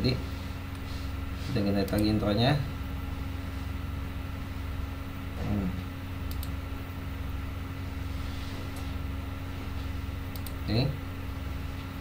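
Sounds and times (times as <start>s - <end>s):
low electrical hum: 0.0s - 12.0s
faint mouse clicks: 6.3s - 6.5s, 10.3s - 10.6s.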